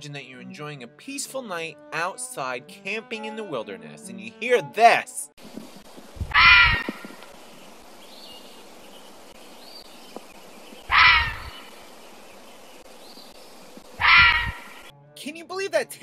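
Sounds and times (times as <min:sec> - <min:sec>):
fisher cat screaming: 0:06.3 - 0:07.1, 0:10.9 - 0:11.6, 0:14.0 - 0:14.8.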